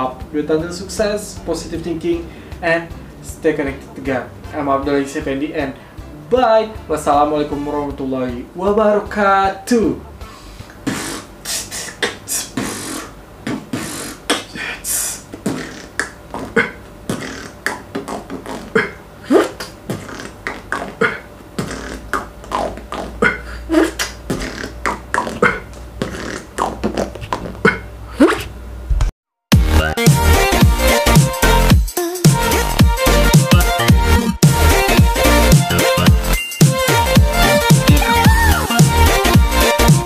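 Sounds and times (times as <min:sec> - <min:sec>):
man beatboxing: 0:10.7 - 0:28.5, 0:29.6 - 0:40.0
electronic dance music: 0:29.5 - 0:40.0.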